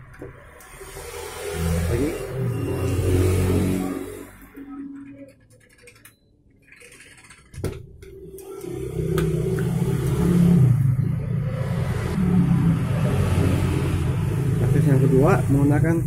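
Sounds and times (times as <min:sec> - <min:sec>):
passing traffic rumble: 0:08.0 - 0:16.0.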